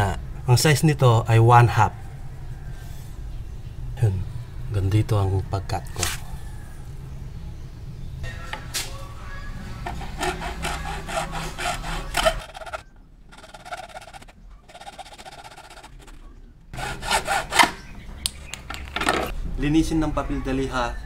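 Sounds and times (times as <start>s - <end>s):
hacksaw cutting plastic pipe: 9.8s - 16.2s, 16.8s - 17.8s.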